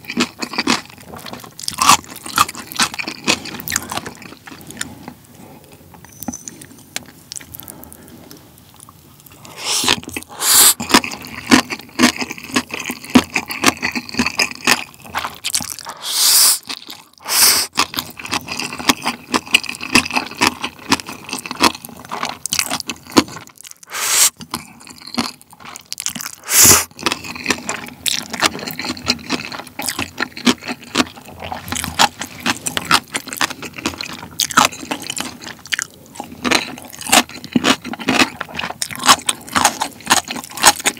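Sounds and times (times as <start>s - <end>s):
pickled radish crunched and chewed: 0.0s - 5.2s, 7.0s - 40.9s
noodles slurped: 9.3s - 19.0s, 22.8s - 35.4s.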